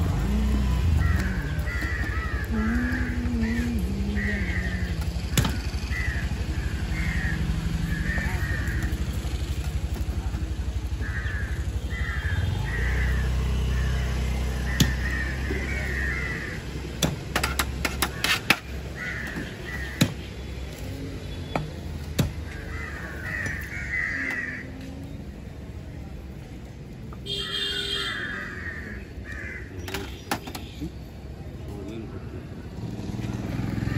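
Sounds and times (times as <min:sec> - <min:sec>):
crows cawing: 0:00.9 - 0:05.0, 0:05.6 - 0:09.0, 0:10.9 - 0:16.7, 0:17.9 - 0:20.0, 0:22.4 - 0:24.8, 0:27.4 - 0:29.9.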